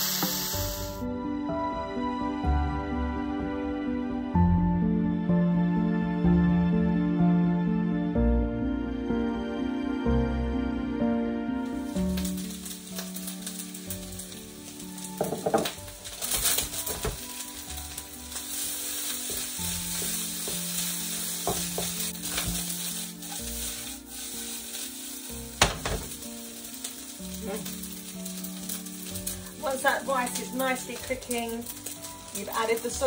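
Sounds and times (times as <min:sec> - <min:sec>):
rice sizzling in a wok: 0:00.0 - 0:01.1, 0:11.7 - 0:33.0
spatula stirring and scraping: 0:16.0 - 0:25.6.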